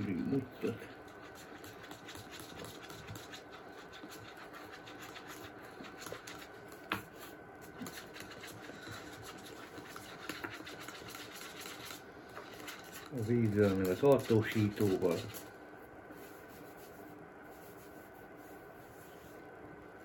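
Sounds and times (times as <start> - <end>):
scratchy stirring in container: 0.4 - 15.6.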